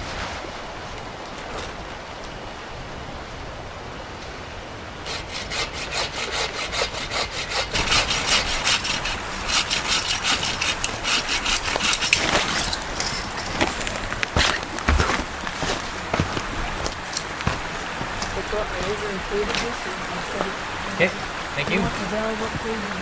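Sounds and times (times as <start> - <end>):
bow saw cutting firewood: 5.0 - 13.2.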